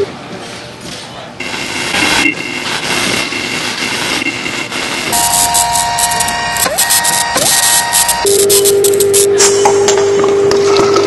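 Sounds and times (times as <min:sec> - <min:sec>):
rapid electronic clicking: 0:01.4 - 0:09.6
dense noisy electronic wash: 0:01.4 - 0:11.0.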